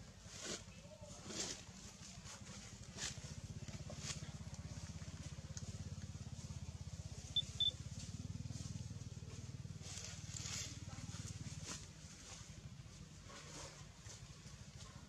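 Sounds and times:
engine running with rapid pulse: 1.9s - 15.0s
short high chirps: 7.4s - 7.8s.

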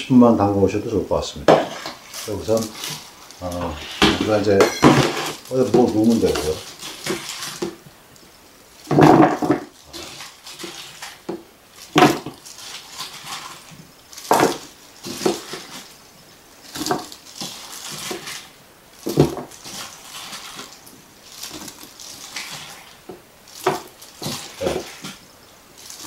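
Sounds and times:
quiet rustling: 1.3s - 26.0s
radish slices clattering into container: 1.5s - 7.8s.

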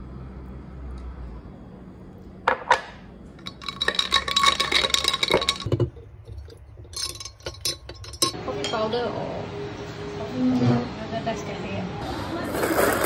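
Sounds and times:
ice clinking in a glass: 3.4s - 8.4s
spoon clinking in a glass jar: 3.4s - 8.4s.

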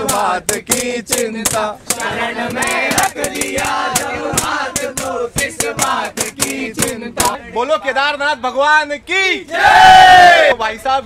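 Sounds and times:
hand claps and slaps: 0.0s - 7.4s
men chanting in unison: 0.0s - 7.6s.

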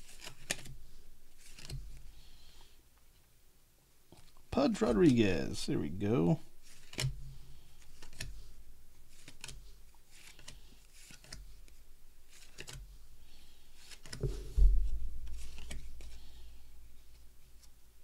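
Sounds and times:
cards swishing and clicking: 0.0s - 2.1s, 6.6s - 16.4s
low thump: 14.2s - 15.4s.

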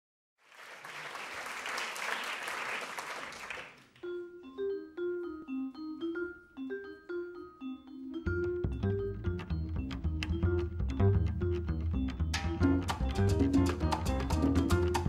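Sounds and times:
audience applause: 0.4s - 4.0s
vibraphone melody: 4.0s - 15.0s.

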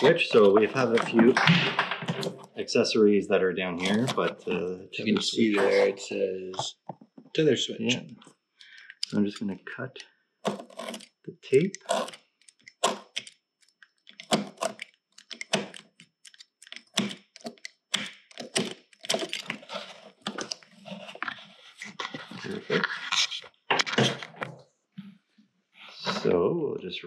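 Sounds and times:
wires and plastic connectors rustling: 0.0s - 2.6s, 10.4s - 24.6s
hand tool clicking and snipping: 10.5s - 19.6s.

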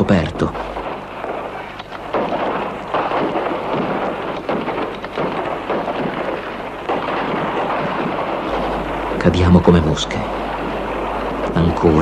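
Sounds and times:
gunfire and shell bursts: 0.0s - 9.4s.

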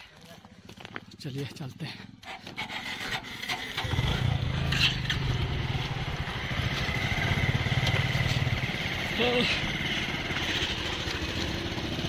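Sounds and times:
motorcycle engine running: 0.2s - 12.0s.

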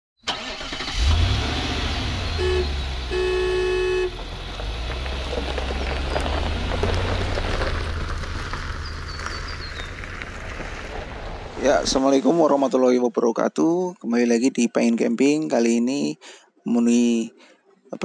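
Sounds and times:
van engine humming: 0.2s - 12.0s
van horn tooting: 0.3s - 4.3s.

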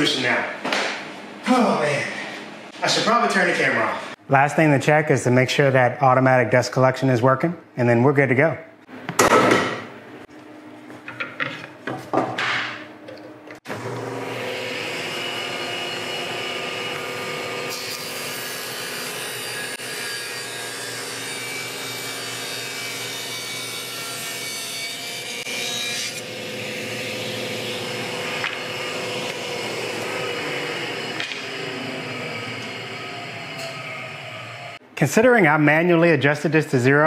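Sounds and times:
table saw running: 13.6s - 34.8s
dust collector running: 13.7s - 20.0s, 26.2s - 34.8s
saw blade cutting wood: 14.2s - 34.8s.

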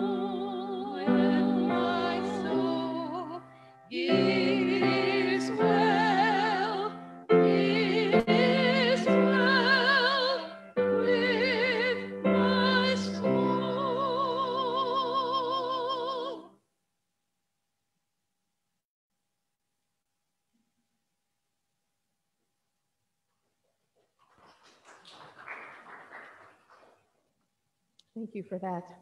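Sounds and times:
two women singing a duet: 0.0s - 16.5s.

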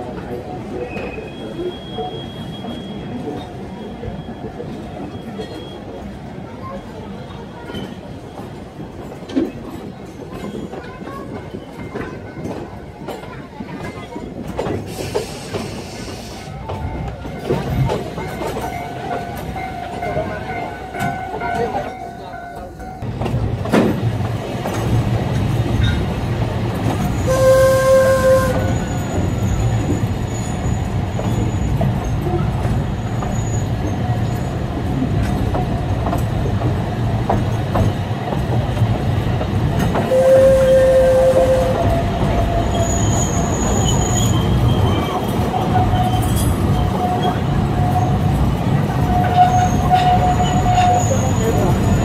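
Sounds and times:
train wheels rumbling on track: 0.0s - 52.0s
wheel squeal: 27.1s - 32.4s, 33.0s - 34.6s, 40.1s - 48.3s, 49.0s - 52.0s
train whistle blasts: 27.2s - 28.9s, 40.1s - 42.1s.

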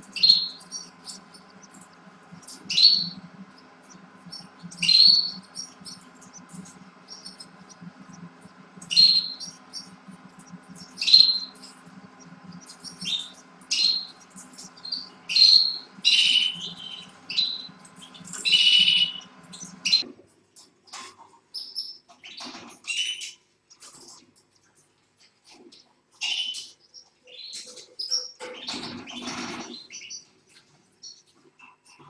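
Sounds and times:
canary chirps: 0.0s - 20.1s, 20.9s - 32.0s
low steady hum: 0.0s - 20.4s.

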